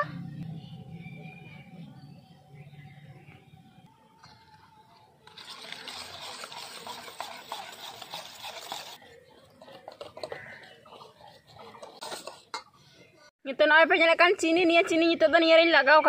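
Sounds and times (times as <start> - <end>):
whisk beating batter in bowl: 5.2 - 12.6
whisk tapping against bowl: 5.3 - 9.0, 9.6 - 12.6.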